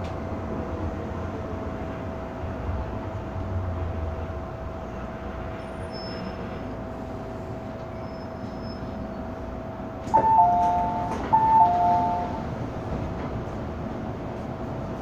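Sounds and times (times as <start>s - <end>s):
train running hum: 0.0s - 15.0s
two-note train chime: 10.1s - 12.5s.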